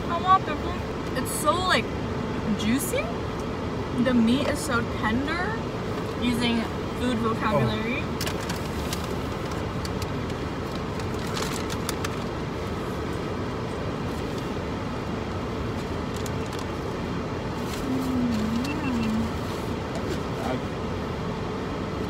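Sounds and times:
car air conditioning blowing: 0.0s - 22.0s
person humming: 17.8s - 19.3s.

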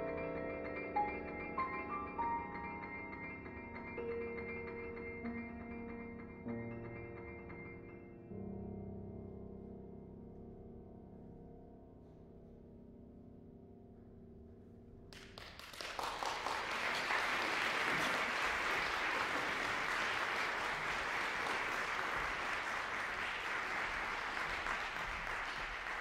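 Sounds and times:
audience applause: 15.2s - 26.0s.

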